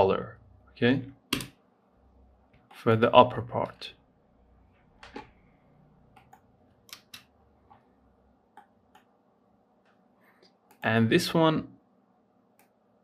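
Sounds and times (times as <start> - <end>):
computer mouse clicks: 6.1 - 7.8, 8.5 - 9.1, 12.6 - 12.8.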